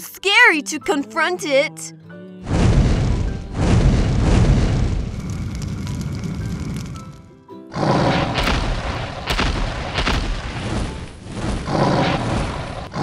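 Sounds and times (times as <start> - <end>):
background music: 0.0 - 5.0, 6.2 - 13.0
deep rumble: 2.4 - 7.3, 8.0 - 13.0
heavy booming footsteps: 8.2 - 12.9.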